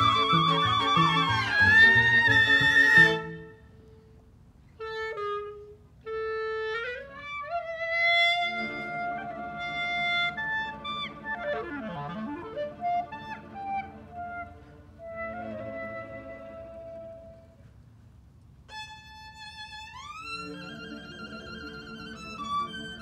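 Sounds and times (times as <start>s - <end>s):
bowed strings: 0.0s - 3.6s
clarinet playing tango: 0.0s - 4.0s, 4.8s - 17.7s, 18.7s - 23.0s.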